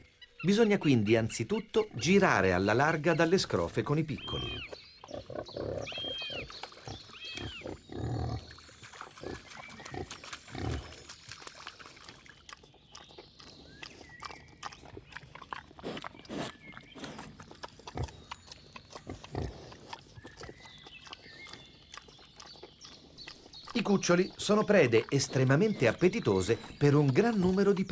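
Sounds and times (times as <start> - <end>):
faint birds chirping: 0.0 - 27.9
wild boar grunting: 4.2 - 11.0, 13.0 - 27.9.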